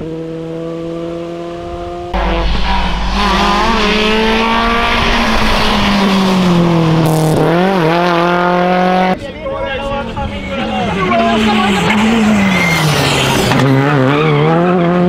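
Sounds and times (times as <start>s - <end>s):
car engine revving hard: 0.0s - 9.2s.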